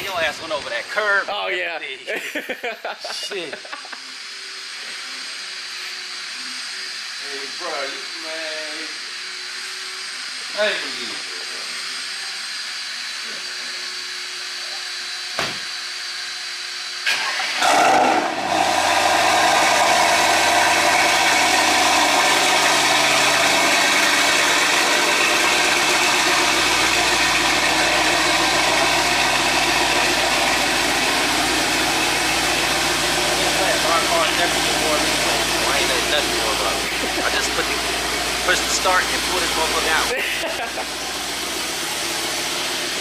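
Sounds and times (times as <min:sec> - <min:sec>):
car engine idling: 0:13.8 - 0:43.0
car engine starting and revving: 0:15.8 - 0:43.0.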